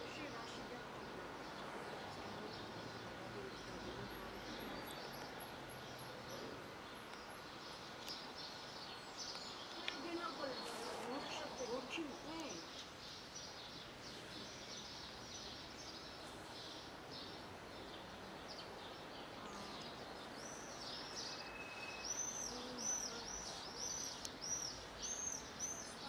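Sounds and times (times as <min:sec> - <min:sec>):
outdoor background noise: 0:00.0 - 0:26.0.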